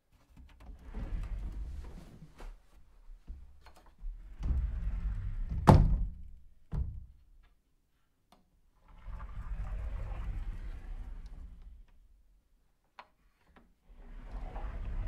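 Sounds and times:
sliding door rolling on track: 0:00.8 - 0:01.7, 0:04.2 - 0:05.7, 0:08.8 - 0:11.9, 0:13.9 - 0:15.0.

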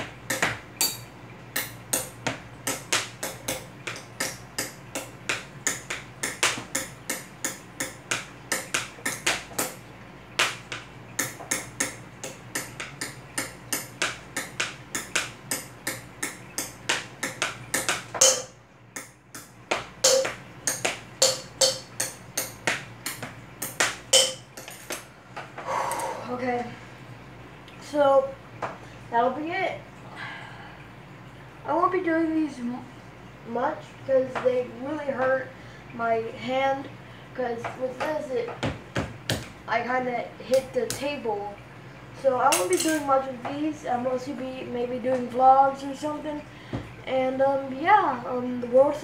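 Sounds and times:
hand drumming on tabletop: 0:01.6 - 0:25.0.

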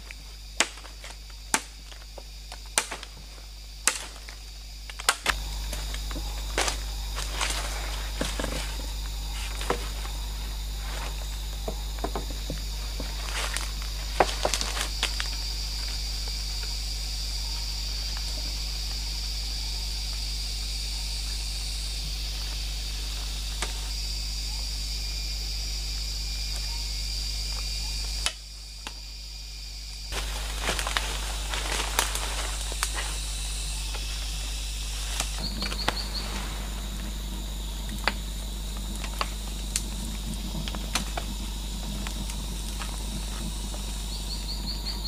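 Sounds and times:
sticks and leaves rustling: 0:00.0 - 0:16.8, 0:30.1 - 0:45.0
high insect drone: 0:00.0 - 0:45.0.

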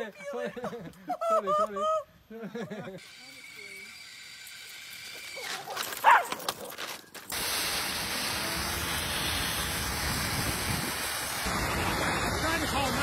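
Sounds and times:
dog yelping: 0:05.4 - 0:06.7
water jet rushing hiss: 0:07.3 - 0:13.0.

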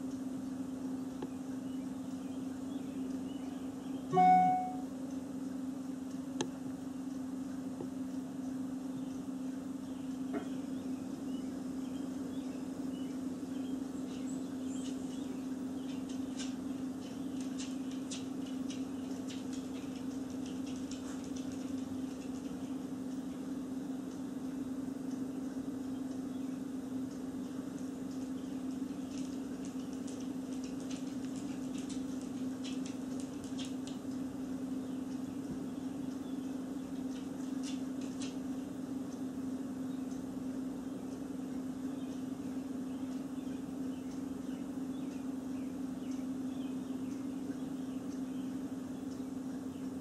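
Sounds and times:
low machine hum: 0:00.0 - 0:50.0
faint high chirps: 0:01.7 - 0:04.9
faint high ticks: 0:04.1 - 0:11.3, 0:14.1 - 0:39.3, 0:41.0 - 0:50.0.

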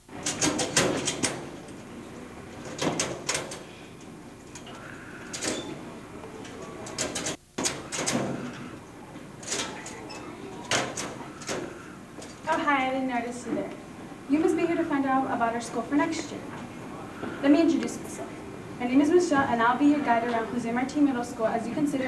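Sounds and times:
metal locker doors clanking: 0:00.0 - 0:12.6
padlocks and latches clicking: 0:02.6 - 0:03.7, 0:06.4 - 0:08.6.

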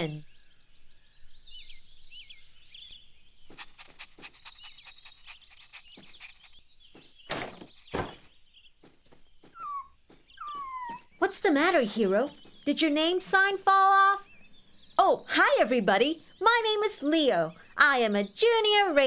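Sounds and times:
twittering birdsong: 0:00.0 - 0:19.0
puppy whimpering: 0:09.6 - 0:11.1.

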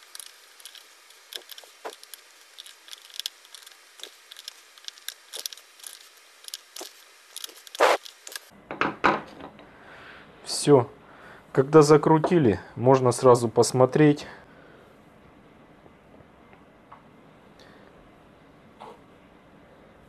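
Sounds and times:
metal clicks and scrapes: 0:00.0 - 0:08.5.

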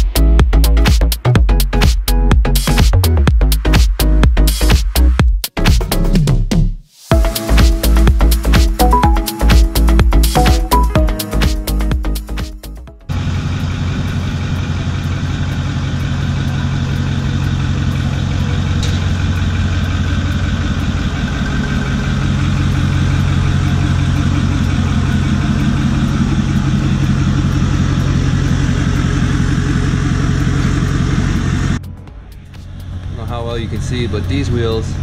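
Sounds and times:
pickup truck engine running: 0:07.1 - 0:35.0.

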